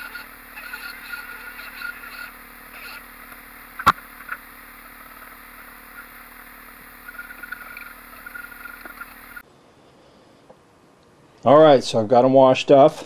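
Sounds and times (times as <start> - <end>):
faint poultry calls: 0.0 - 9.4
low steady hum: 0.0 - 11.5.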